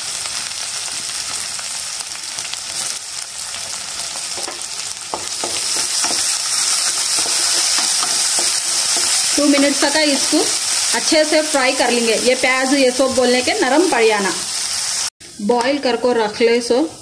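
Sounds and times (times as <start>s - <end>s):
vegetables sizzling in hot oil: 0.0s - 17.0s
spatula knocking and scraping pan: 4.3s - 9.9s.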